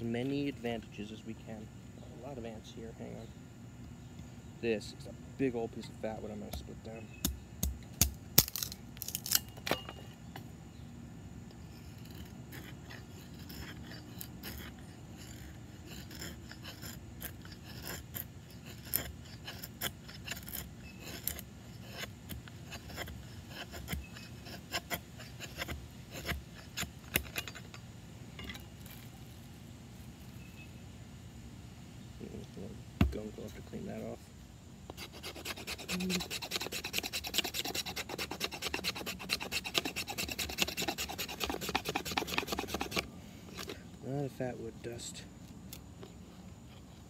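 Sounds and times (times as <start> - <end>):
wood cracking as it splits: 7.6 - 9.5
knife scraping wood: 11.5 - 27.8, 34.9 - 43.9.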